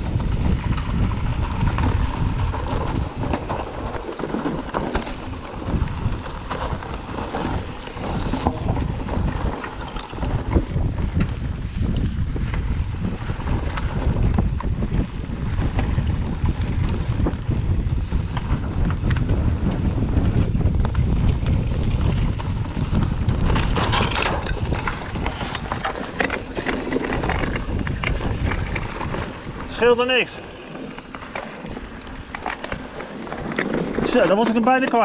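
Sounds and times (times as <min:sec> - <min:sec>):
bike rattling and clicking: 0:00.0 - 0:35.0
tyres rumbling over dirt and rock: 0:00.0 - 0:35.0
wind buffeting microphone: 0:00.0 - 0:35.0.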